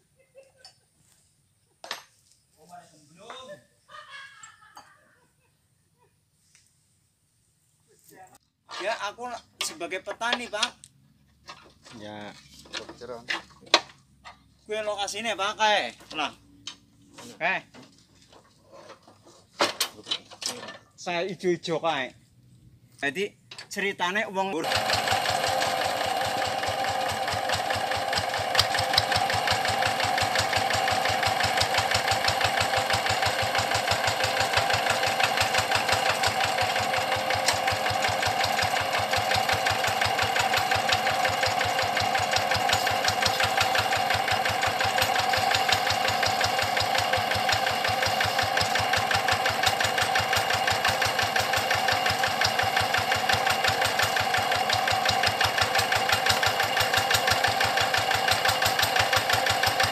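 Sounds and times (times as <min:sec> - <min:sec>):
diesel engine knocking: 0:24.6 - 0:59.9.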